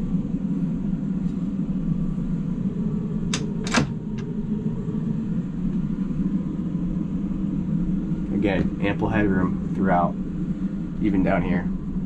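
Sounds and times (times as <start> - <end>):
low machinery hum: 0.0 - 12.0
locker door clicking shut: 3.3 - 4.3.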